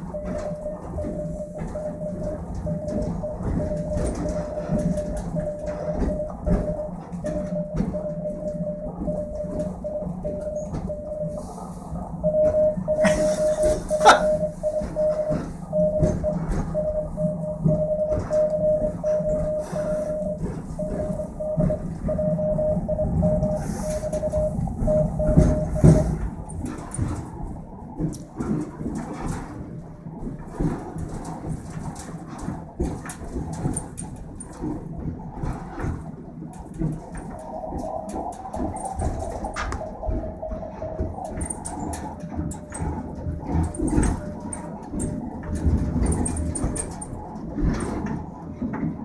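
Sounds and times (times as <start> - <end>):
morse code beeps: 0.0 - 27.3, 37.2 - 48.1
low rumble of railway car: 0.0 - 49.0.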